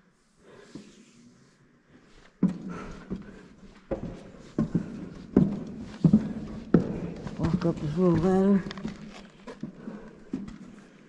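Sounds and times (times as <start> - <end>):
heavy footsteps: 2.2 - 11.0.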